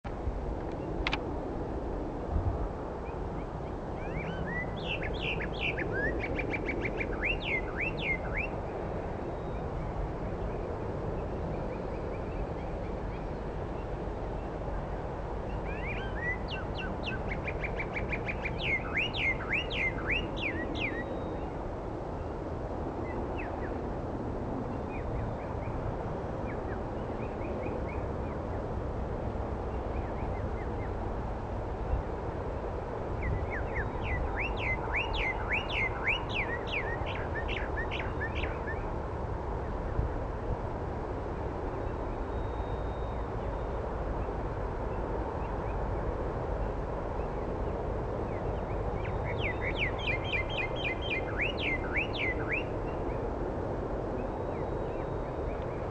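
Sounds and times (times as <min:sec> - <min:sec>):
goldfinch twittering: 0:15.6 - 0:21.4, 0:49.0 - 0:53.0.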